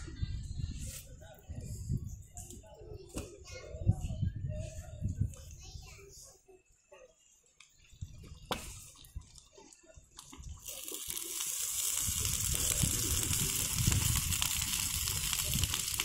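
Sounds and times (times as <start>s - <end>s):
rushing hiss of thermite reaction: 10.6s - 16.0s.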